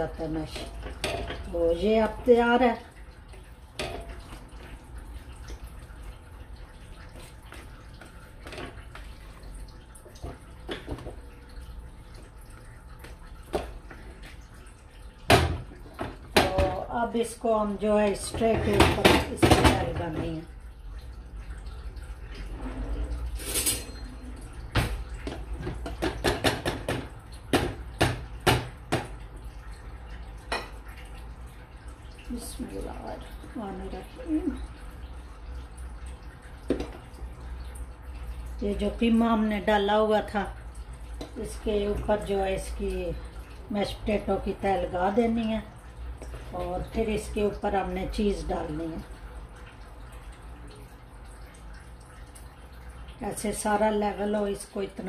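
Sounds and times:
wet squelching of whisked potatoes: 0.0 - 23.4.

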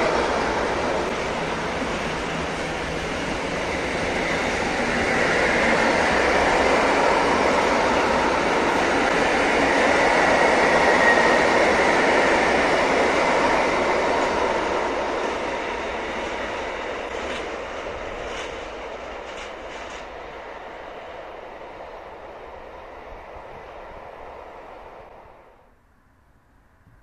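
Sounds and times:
freight train wheels rumbling: 0.0 - 25.6.

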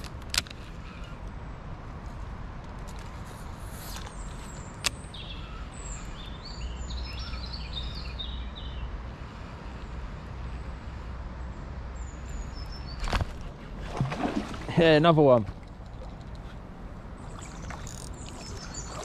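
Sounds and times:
songbird singing: 3.8 - 14.0, 14.6 - 19.0.

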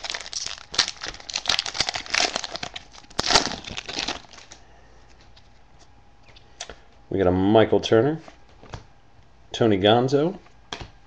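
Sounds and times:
wrapper crinkling and tearing: 0.0 - 4.6.

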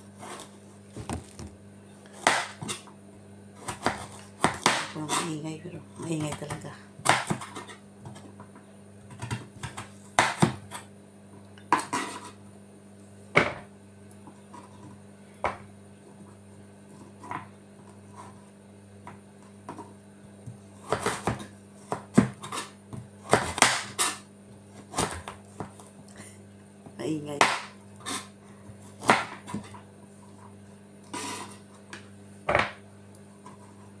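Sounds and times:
knife chopping on wooden board: 2.2 - 2.9, 3.6 - 5.2, 6.2 - 8.2, 9.1 - 10.9, 20.8 - 24.2, 27.4 - 29.8.

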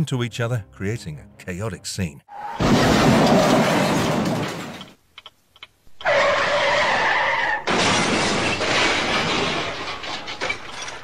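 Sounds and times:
tyres skidding: 5.9 - 11.0.

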